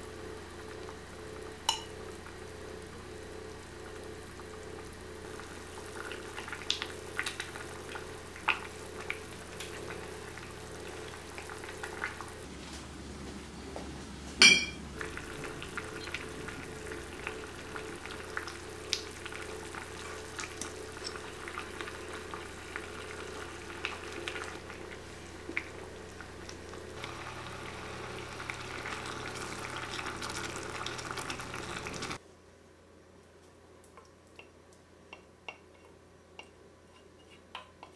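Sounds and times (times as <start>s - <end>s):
sauce bubbling in a saucepan: 0.0s - 12.4s, 15.0s - 32.2s
sharp ringing clink: 14.4s - 14.8s.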